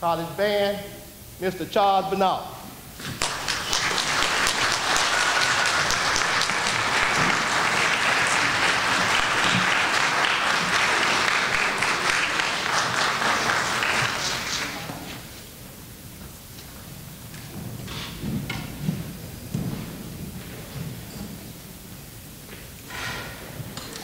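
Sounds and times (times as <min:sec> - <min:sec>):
audience applauding: 0:03.2 - 0:15.1.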